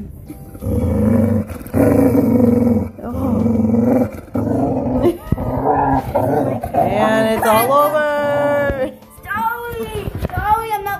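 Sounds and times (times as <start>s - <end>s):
dog growling: 0.5s - 8.7s.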